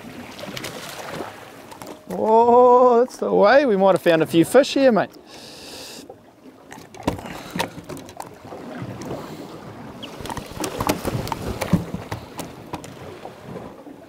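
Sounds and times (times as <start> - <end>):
water lapping at hull: 0.0 - 14.0
knocks and clicks on boat: 1.6 - 2.3, 6.7 - 9.2, 9.9 - 13.7.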